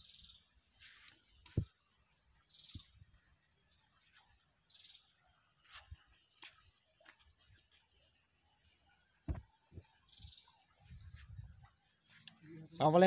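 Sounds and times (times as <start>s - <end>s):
soft low thumps: 9.3s - 9.9s.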